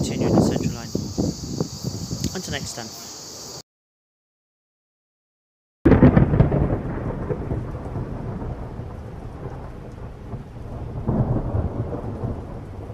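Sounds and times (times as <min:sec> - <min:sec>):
steady hiss: 0:00.0 - 0:03.6.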